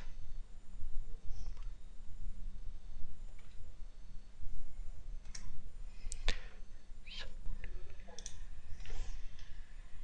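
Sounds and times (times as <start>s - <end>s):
steady low hum: 0.0s - 10.0s
computer mouse clicking: 7.6s - 8.4s.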